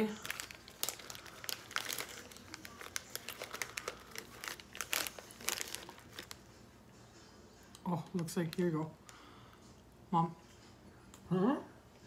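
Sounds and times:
plastic snack bag crinkling: 0:00.0 - 0:06.5, 0:08.0 - 0:09.2.

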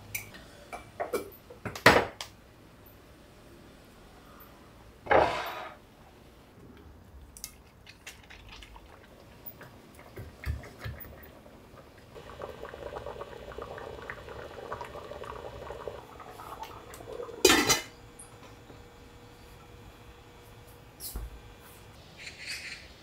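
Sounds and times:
soft liquid simmering: 0:06.6 - 0:19.8.

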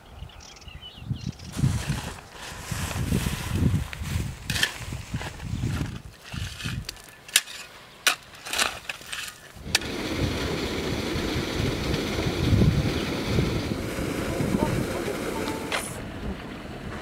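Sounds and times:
water rushing along a ditch: 0:09.6 - 0:17.0.

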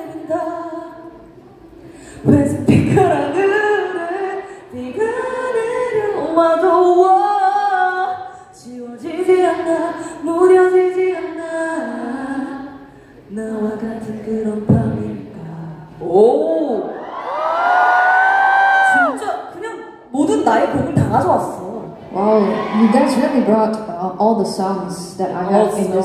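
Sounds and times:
woman singing unaccompanied: 0:00.0 - 0:01.3, 0:02.2 - 0:16.8.

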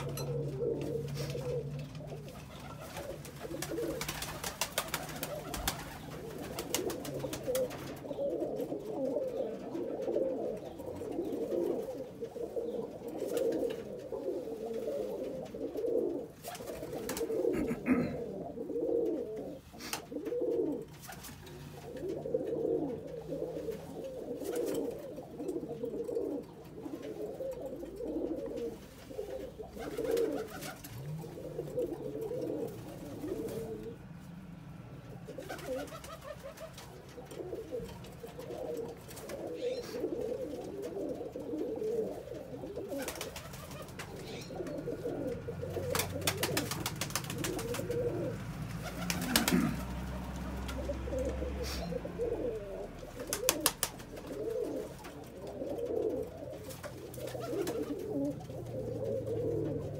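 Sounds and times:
pigeons cooing: 0:00.0 - 0:59.9.

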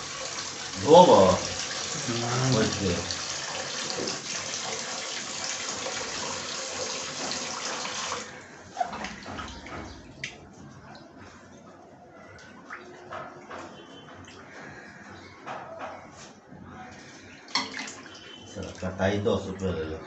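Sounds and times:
tap water running into steel bowl: 0:00.0 - 0:08.3
water splashing in bowl: 0:17.5 - 0:19.6.

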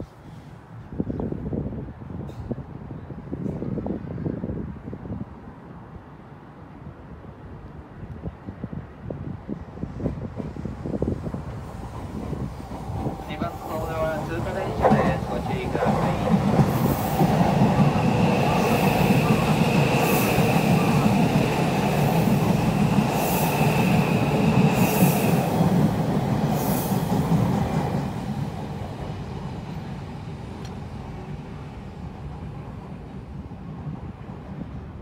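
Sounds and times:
rushing hiss of passing train: 0:00.0 - 0:35.0
train wheels rumbling: 0:09.7 - 0:35.0.

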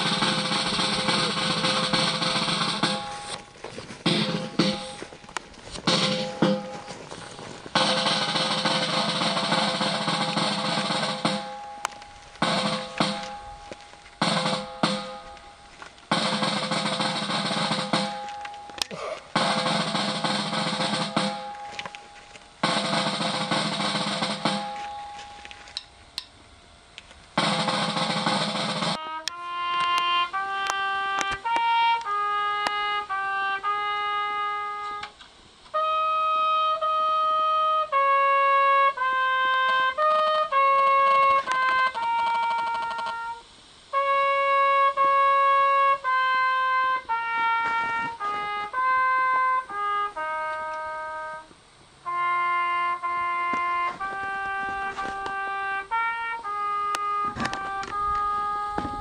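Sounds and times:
snare drum rolls: 0:00.0 - 0:25.5, 0:27.3 - 0:35.0, 0:38.3 - 0:43.4, 0:52.1 - 0:59.0
solo trumpet slow melody: 0:07.8 - 0:25.5, 0:27.4 - 0:59.0.

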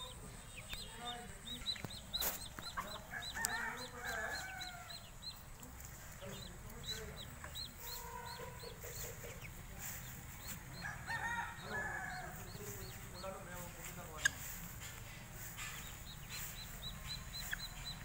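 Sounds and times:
guineafowl calling: 0:06.2 - 0:18.0.

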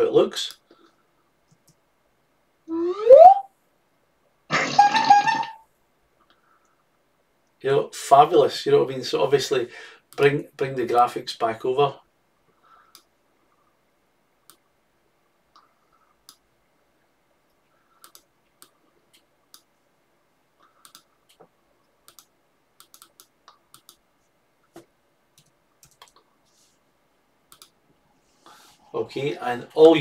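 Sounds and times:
mouse and keyboard clicks: 0:20.8 - 0:24.0, 0:25.4 - 0:26.3, 0:27.5 - 0:27.8.

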